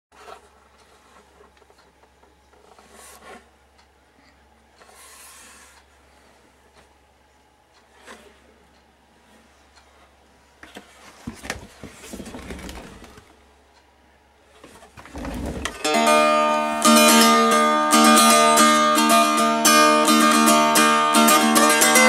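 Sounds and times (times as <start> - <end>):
guitar plucked and strummed: 15.8 - 22.0.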